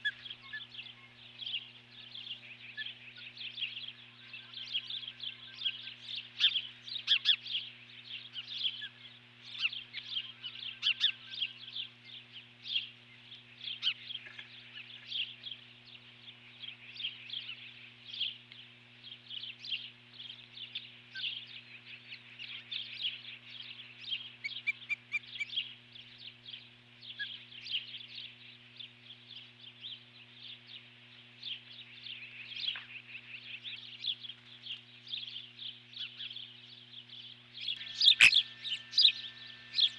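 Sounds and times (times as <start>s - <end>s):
low electrical hum: 0.0s - 39.9s
ospreys chirping: 37.6s - 39.9s.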